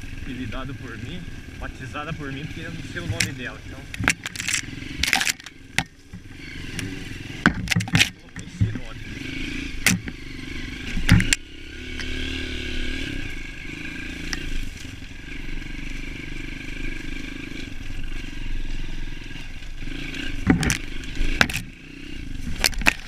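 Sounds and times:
motorcycle engine running: 0:00.0 - 0:23.0
motorcycle knocking over bumps: 0:02.0 - 0:13.1, 0:19.4 - 0:23.0.

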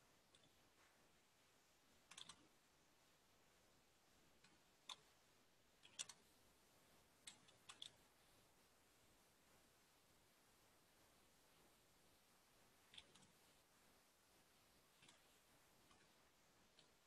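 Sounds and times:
faint keyboard keystrokes: 0:02.1 - 0:02.5.

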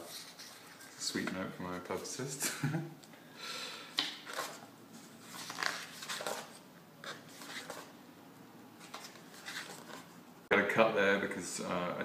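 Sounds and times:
book pages turning: 0:04.1 - 0:07.9, 0:08.8 - 0:10.2.

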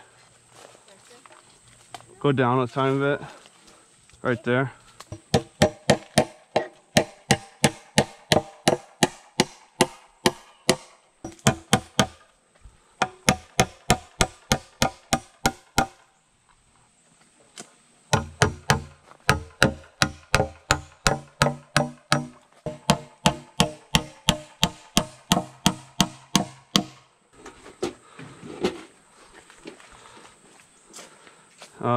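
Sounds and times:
hammer driving nails into wood: 0:05.1 - 0:12.2, 0:13.0 - 0:16.0, 0:18.1 - 0:27.0.

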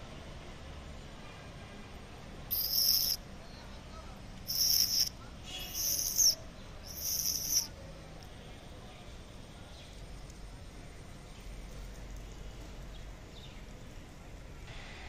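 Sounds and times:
outdoor background noise: 0:00.0 - 0:15.0
insect buzzing: 0:02.5 - 0:03.2, 0:04.5 - 0:07.7.

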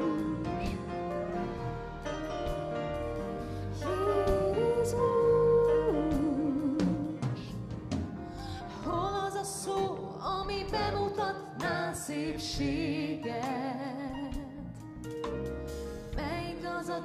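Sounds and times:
gospel band accompaniment: 0:00.0 - 0:17.0
person singing with vibrato: 0:03.6 - 0:07.5.

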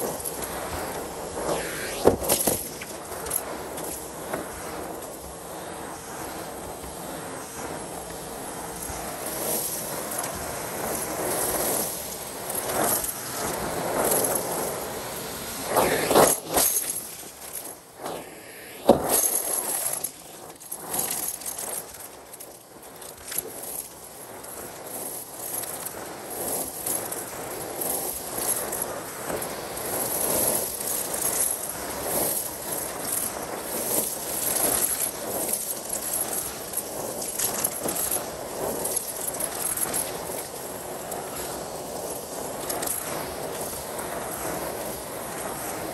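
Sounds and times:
vacuum cleaner running: 0:00.0 - 0:45.9.

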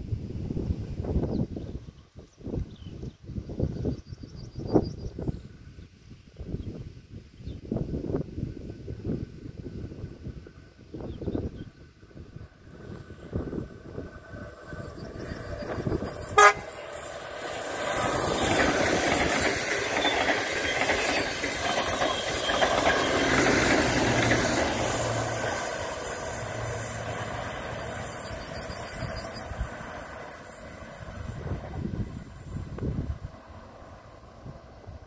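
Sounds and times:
train wheels rumbling on rails: 0:12.0 - 0:35.0
train horn toot: 0:16.3 - 0:17.0.

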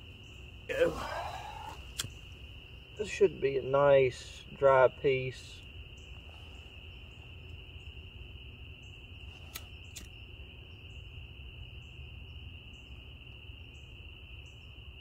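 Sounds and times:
high-pitched animal chorus: 0:00.3 - 0:02.3
light clicks: 0:01.9 - 0:02.2, 0:09.4 - 0:10.2.

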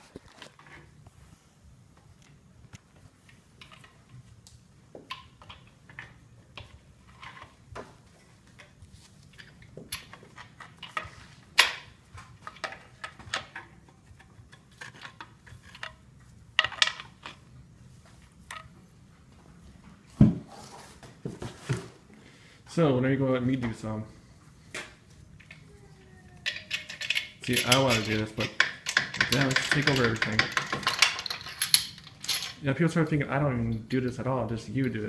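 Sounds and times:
metal clinks of bolts and tool: 0:26.4 - 0:32.6.

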